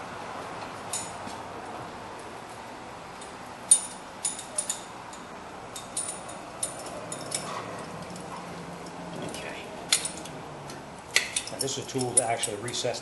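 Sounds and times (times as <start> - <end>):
steady background noise: 0.0 - 13.0
metal tools clinking: 3.2 - 13.0.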